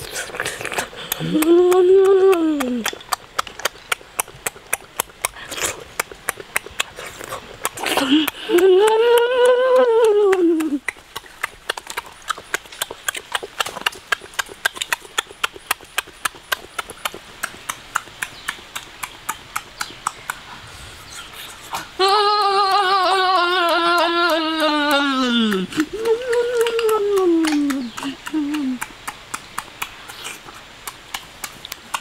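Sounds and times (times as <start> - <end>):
person humming: 1.0 - 3.0, 7.8 - 10.9, 21.8 - 28.9.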